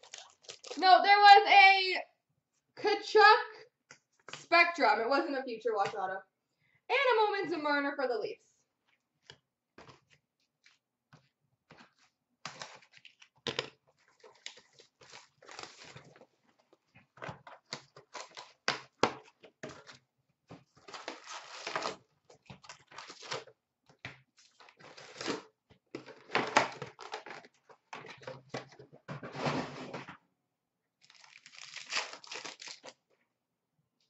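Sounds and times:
tearing crinkling packaging: 0.0s - 0.8s, 12.5s - 16.3s, 17.6s - 19.2s, 20.8s - 23.5s, 24.4s - 27.5s, 31.0s - 33.0s.

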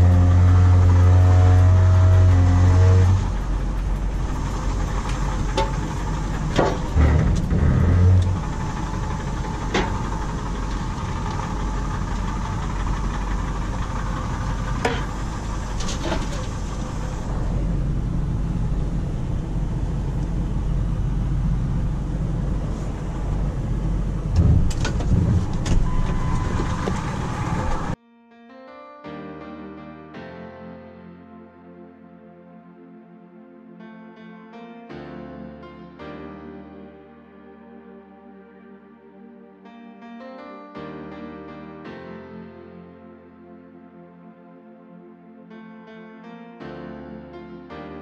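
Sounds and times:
truck clunking on metal ramps: 0.0s - 17.8s, 24.0s - 28.0s
truck engine rumbling: 0.0s - 28.0s.

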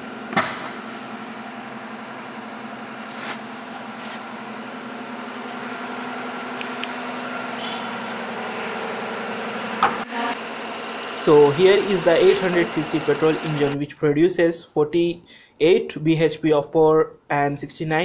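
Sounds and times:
car engine idling: 0.0s - 13.8s.

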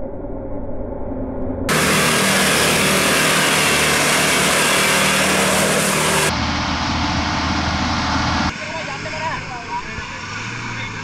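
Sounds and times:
vehicle engine running: 1.7s - 11.0s.

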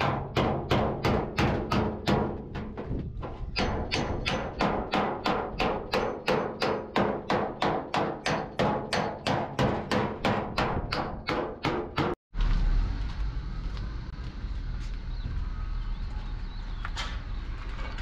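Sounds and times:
hammer blows on sheet metal: 0.0s - 12.2s.

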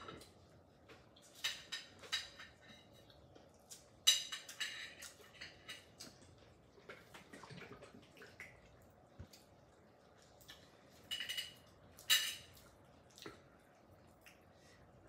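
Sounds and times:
wet chewing mouth noises: 12.6s - 14.6s.

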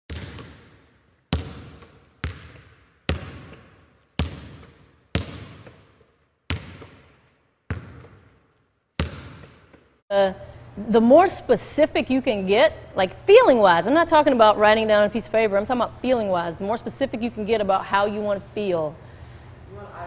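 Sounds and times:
basketball bouncing with echo: 0.1s - 10.0s.

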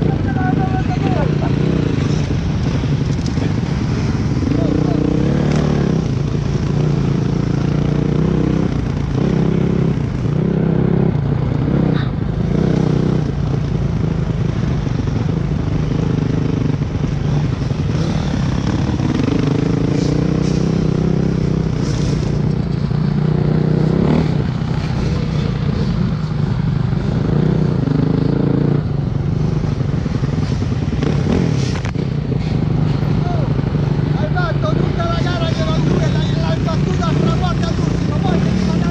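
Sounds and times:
motocross bike engine revving: 0.0s - 38.9s.

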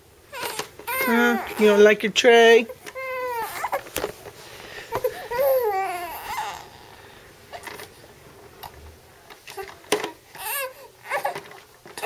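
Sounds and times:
infant whiny crying: 0.3s - 1.8s, 3.0s - 3.8s, 4.9s - 7.0s, 10.3s - 12.0s.

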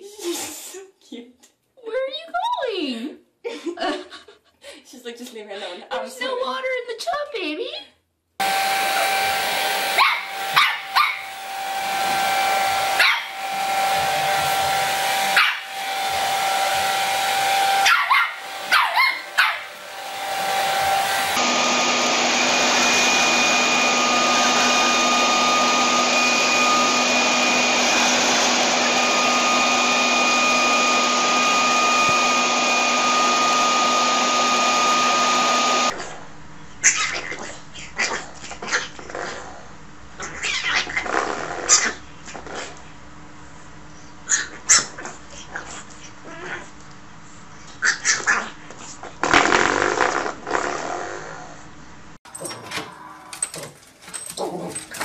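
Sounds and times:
hair dryer blowing: 8.4s - 36.0s
leaf blower whining: 8.4s - 36.0s
small dog barking: 9.9s - 11.4s, 12.9s - 13.4s, 15.3s - 15.7s, 17.8s - 19.7s.

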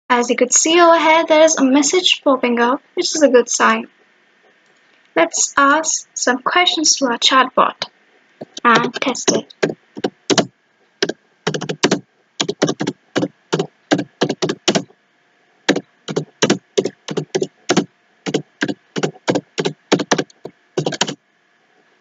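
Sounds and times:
typing on computer keyboard: 8.4s - 14.9s, 15.7s - 21.2s.

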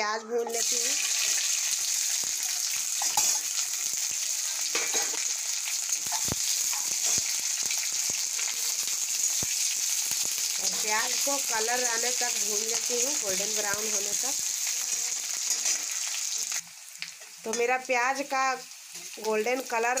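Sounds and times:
onions sizzling in hot oil: 0.0s - 20.0s
spatula scraping a pan: 15.3s - 16.6s.

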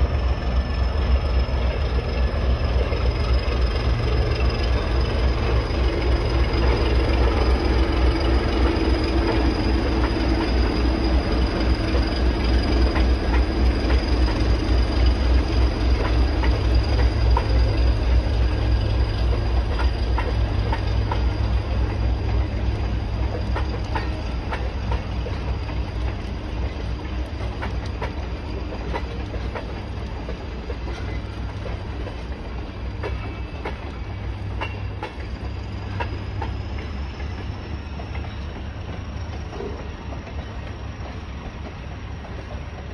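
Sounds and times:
train rumbling past: 0.0s - 42.9s
wheels clacking over rail joints: 0.4s - 42.9s.

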